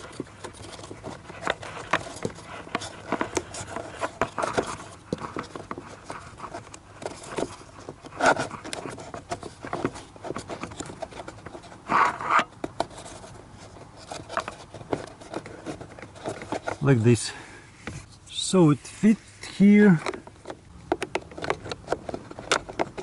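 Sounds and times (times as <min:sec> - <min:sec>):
paper filter rustling on plastic: 0:00.0 - 0:17.2.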